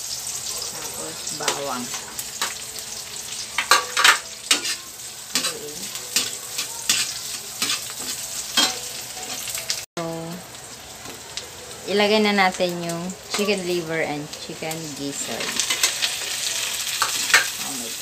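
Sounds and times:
onions sizzling in hot oil: 0:00.0 - 0:18.0
metal ladle scraping pan: 0:03.6 - 0:09.5.

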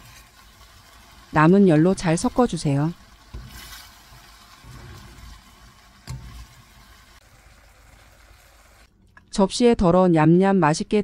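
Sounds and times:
spatula scraping in a steel pan: 0:03.3 - 0:06.6.

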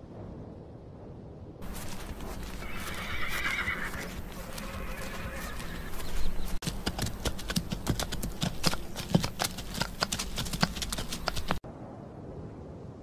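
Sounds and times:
hooves clopping on hard ground: 0:01.6 - 0:11.6.

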